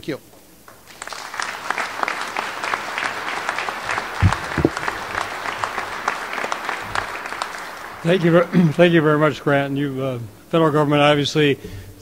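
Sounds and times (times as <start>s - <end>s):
audience applauding: 0.7s - 10.8s
low thumps: 4.2s - 5.0s.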